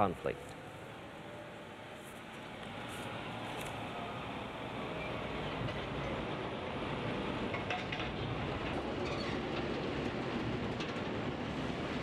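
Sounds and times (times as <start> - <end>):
heavy lorry engine and road rumble: 0.0 - 12.0
trailer clanking and rattling: 5.0 - 12.0.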